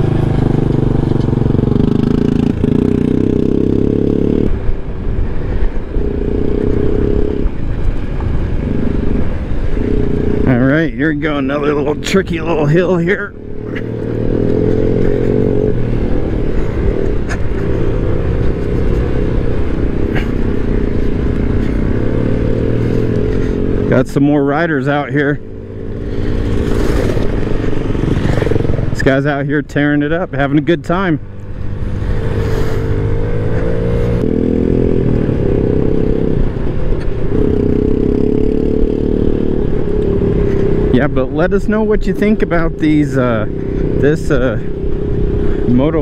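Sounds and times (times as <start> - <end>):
scooter engine running: 0.0 - 4.5
tyres rumbling on dirt road: 0.0 - 46.0.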